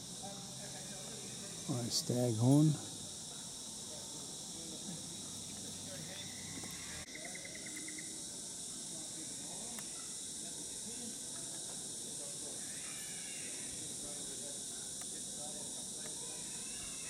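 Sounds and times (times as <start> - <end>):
high-pitched insect chorus: 0.0 - 17.0
short rapid insect trill: 0.0 - 17.0.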